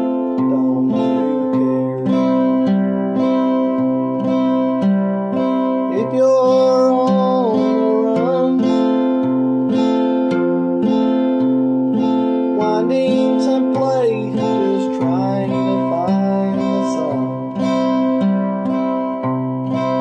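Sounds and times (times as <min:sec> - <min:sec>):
man singing: 0:00.0 - 0:02.8, 0:05.8 - 0:09.3, 0:12.5 - 0:18.0
acoustic guitar fingerpicked: 0:00.0 - 0:20.0.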